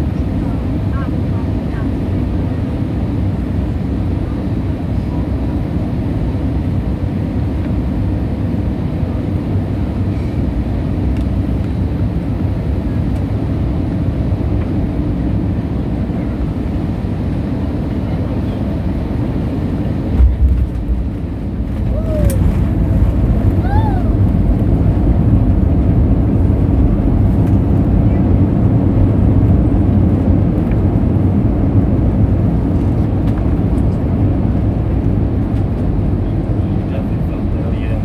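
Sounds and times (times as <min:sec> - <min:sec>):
jet engines and airflow rumbling: 0:00.0 - 0:38.0
loud low thump: 0:20.1 - 0:21.3.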